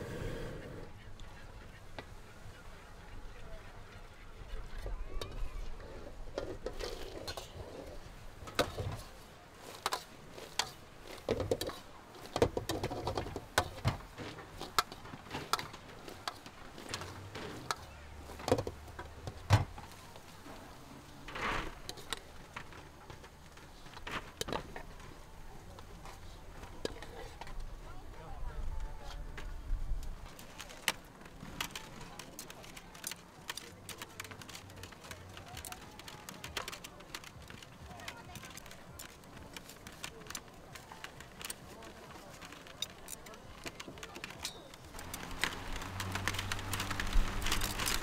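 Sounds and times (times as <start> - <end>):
faint background chatter: 0.0 - 48.0
cooking utensils clicking and knocking: 6.3 - 25.2, 30.2 - 48.0.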